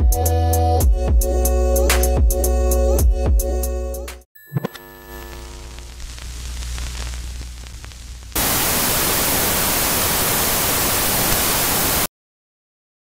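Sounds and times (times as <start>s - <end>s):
low electrical hum with crackle: 4.6s - 10.0s
loud tv static white noise: 5.1s - 12.1s.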